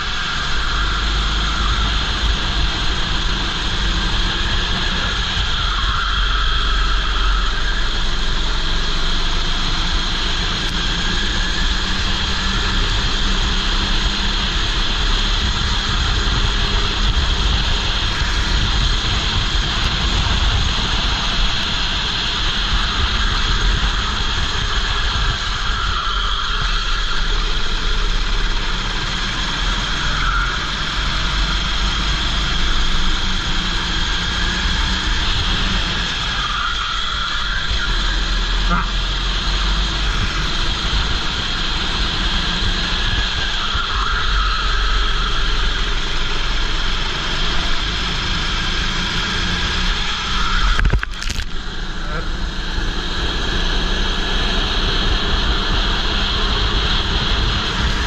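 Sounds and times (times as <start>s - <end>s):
kart engine running: 0.0s - 58.0s
wind buffeting microphone: 15.0s - 26.0s.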